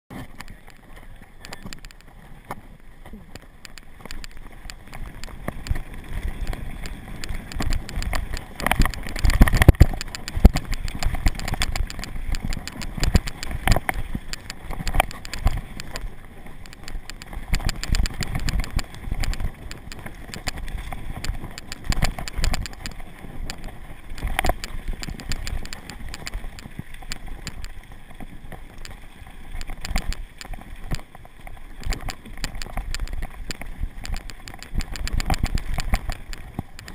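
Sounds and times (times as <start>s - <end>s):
bike knocking and rattling: 0.1s - 36.9s
bike tyres rolling over dirt: 0.1s - 36.9s
wind on microphone: 4.6s - 27.8s.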